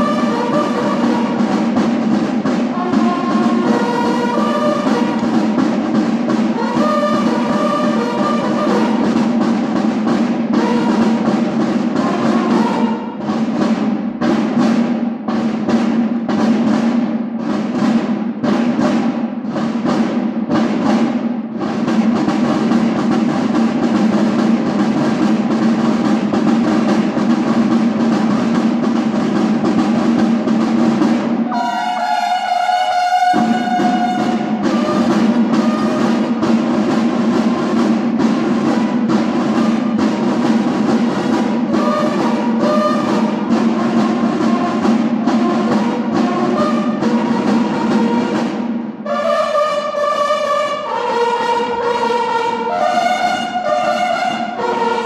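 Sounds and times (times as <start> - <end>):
bugle notes: 0.0 - 9.9, 10.5 - 13.4, 31.5 - 55.0
snare drums beating: 0.0 - 55.0.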